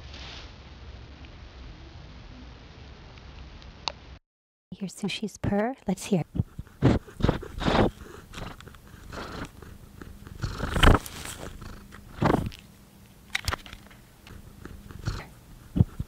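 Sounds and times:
cat purring: 6.1s - 12.7s, 13.8s - 16.0s.

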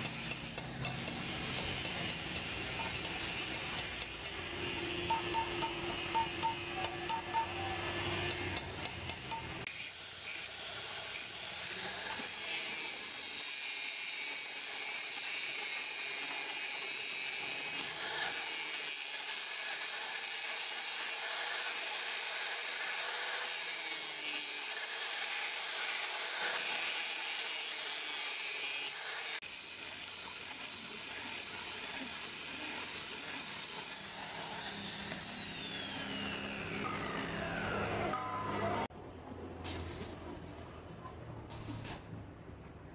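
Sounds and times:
grinder motor winding down: 0.0s - 9.7s, 30.2s - 38.9s
angle grinder grinding metal: 0.0s - 38.2s.

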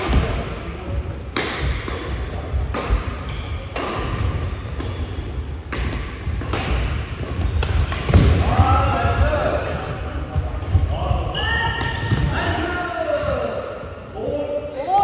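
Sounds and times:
rackets hitting shuttlecock: 1.2s - 10.9s
shoes squeaking: 2.0s - 5.5s.

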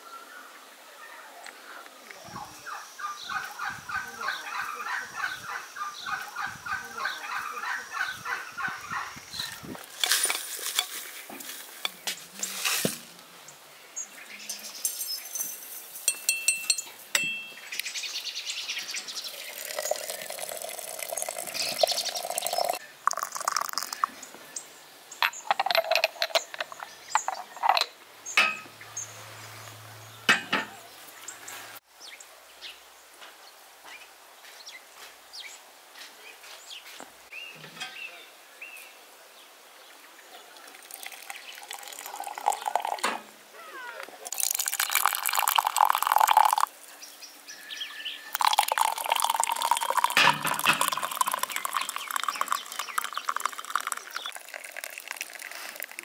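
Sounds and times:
porcelain and glass clinking: 14.5s - 17.6s, 19.5s - 24.1s, 25.2s - 28.7s, 40.8s - 43.3s, 44.3s - 46.7s, 48.4s - 55.4s.

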